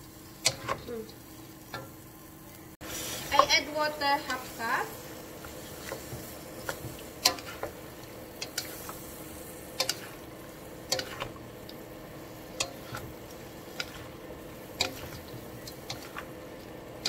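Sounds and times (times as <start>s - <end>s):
food sizzling: 0.0s - 17.0s.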